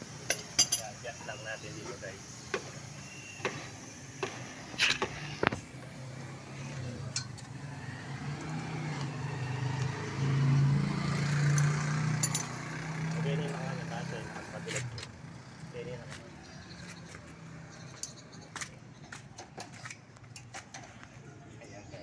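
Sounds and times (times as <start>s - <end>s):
engine running: 1.6s - 16.2s
wrench clinking on metal: 11.6s - 12.6s.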